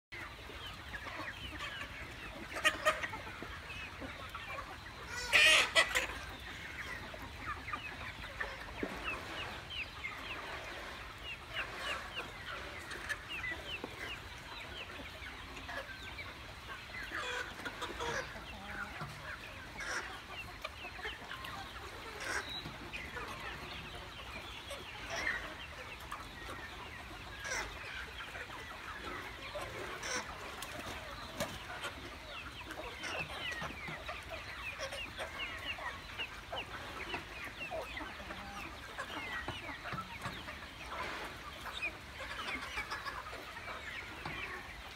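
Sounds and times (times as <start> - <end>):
chicks clucking and peeping: 0.1 - 44.9.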